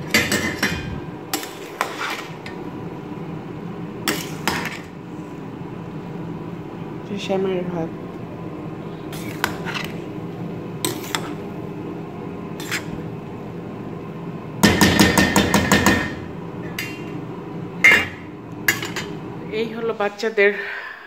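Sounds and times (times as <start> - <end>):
metal spoon scraping a pot: 9.1 - 10.0, 12.6 - 13.0.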